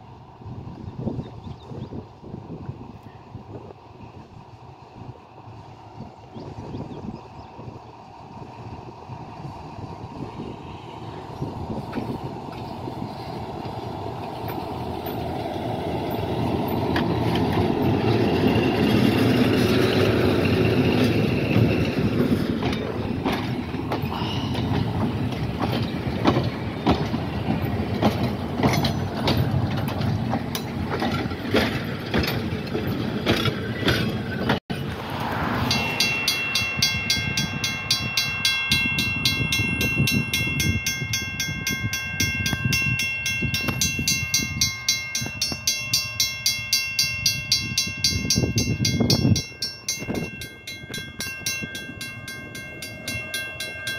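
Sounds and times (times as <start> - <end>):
diesel locomotive engine: 0.0 - 53.9
train wheels clicking over rail joints: 11.3 - 53.9
steady chord of high tones: 35.6 - 53.9.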